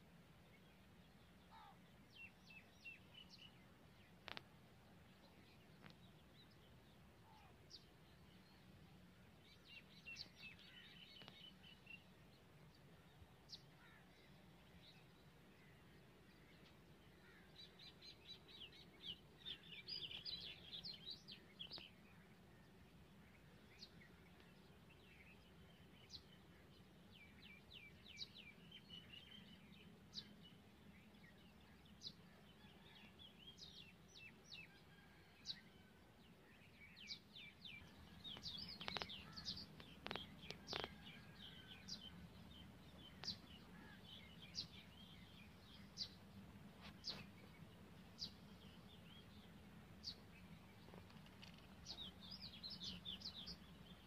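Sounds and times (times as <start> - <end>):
low steady hum: 0.0 - 54.0
birds chirping: 36.6 - 54.0.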